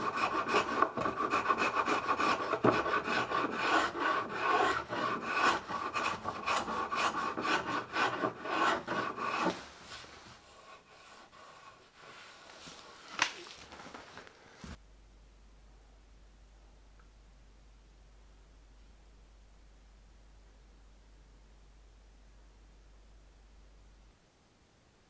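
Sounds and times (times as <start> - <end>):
rasp stroking on wood: 0.0 - 9.7, 10.4 - 12.4.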